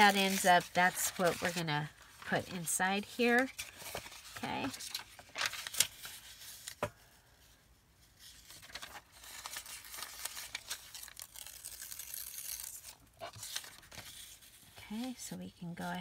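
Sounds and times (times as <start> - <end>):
paper tearing slowly: 0.0 - 2.4, 8.2 - 14.5
paper rustling: 0.0 - 6.9, 8.0 - 15.2.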